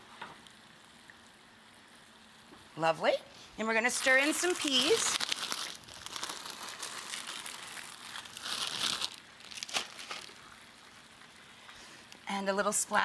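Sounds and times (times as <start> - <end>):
plastic bag crinkling: 3.8 - 10.8.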